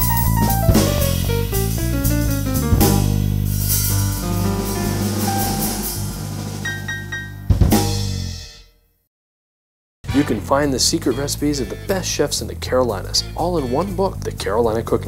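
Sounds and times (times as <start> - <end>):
instrumental theme music: 0.0 - 8.6, 10.0 - 14.4.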